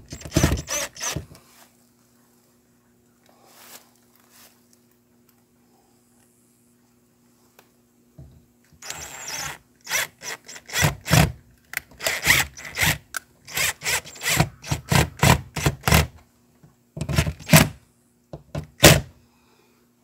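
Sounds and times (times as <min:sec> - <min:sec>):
cordless drill driving screws: 0:00.1 - 0:01.2, 0:08.8 - 0:11.3, 0:12.0 - 0:16.1.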